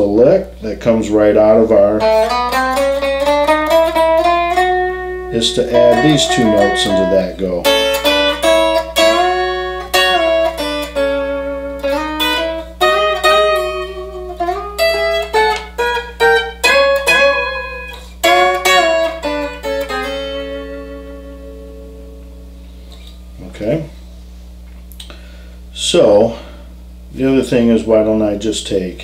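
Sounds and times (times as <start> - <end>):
low amp hum: 0.0 - 29.0
electric guitar blues lick: 1.2 - 23.3.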